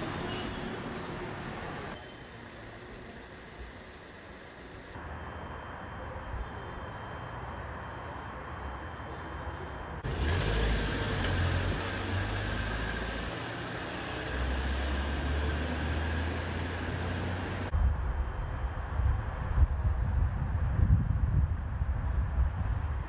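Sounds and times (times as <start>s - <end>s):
outdoor background noise: 0.0s - 23.0s
vehicle engine running: 10.0s - 17.7s.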